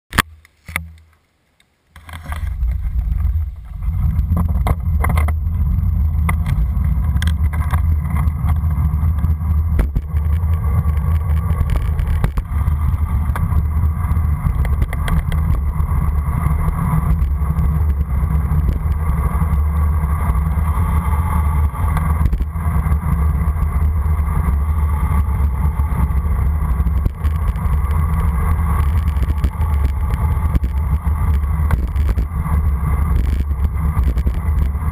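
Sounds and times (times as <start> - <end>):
wind buffeting microphone: 2.2 - 34.9.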